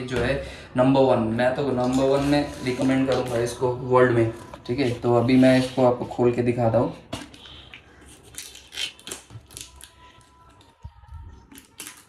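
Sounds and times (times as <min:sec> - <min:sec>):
plastic shrink wrap crinkling: 0:01.6 - 0:05.9, 0:07.4 - 0:12.0.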